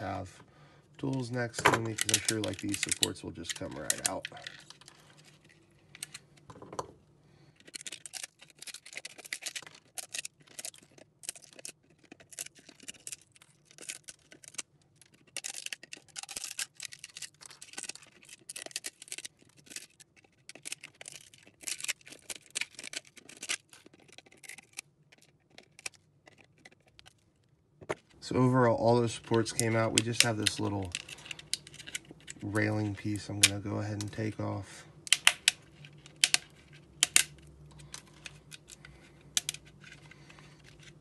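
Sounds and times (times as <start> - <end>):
plastic crackling and snapping: 1.0 - 41.0.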